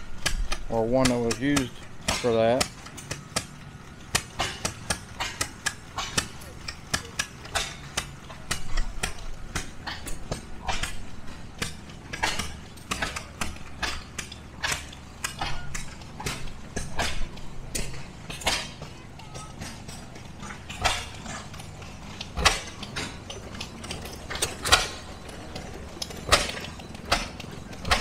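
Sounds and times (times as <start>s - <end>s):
old gas engines rumbling: 0.0s - 28.0s
sharp metallic clicks and clanks: 0.0s - 28.0s.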